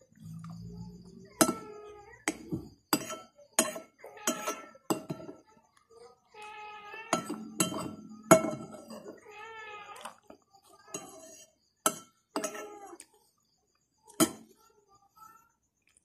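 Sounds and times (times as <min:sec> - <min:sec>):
cutlery clinking on a plate: 0:01.4 - 0:05.5, 0:07.1 - 0:09.2, 0:10.8 - 0:12.9.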